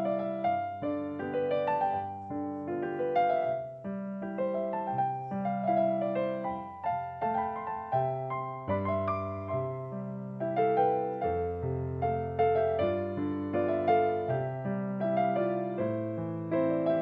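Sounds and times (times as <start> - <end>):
solo piano music: 0.0 - 17.0.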